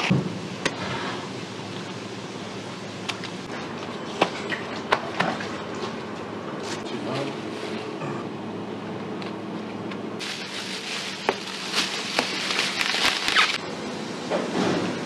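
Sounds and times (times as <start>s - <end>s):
steady low hum: 0.0s - 14.8s
plastic bag crinkling: 10.2s - 13.6s.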